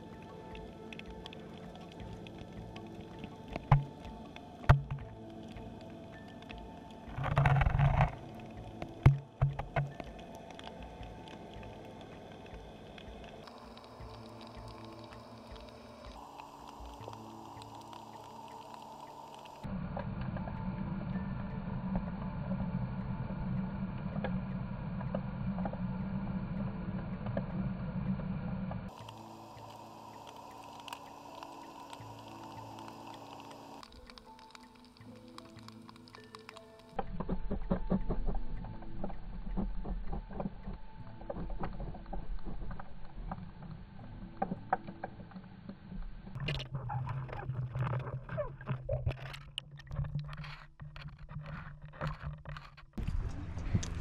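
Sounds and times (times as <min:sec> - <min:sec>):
faint clicks: 0:00.0 - 0:19.7, 0:28.9 - 0:45.4
steady low hum: 0:00.0 - 0:35.5, 0:53.0 - 0:54.0
faint steady tones: 0:00.0 - 0:51.1
muffled underwater rumble: 0:00.0 - 0:54.0
boat engine low rumble: 0:52.9 - 0:54.0.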